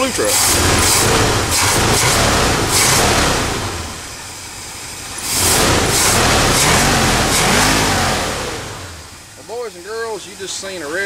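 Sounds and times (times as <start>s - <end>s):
car engine revving: 0.0s - 9.6s.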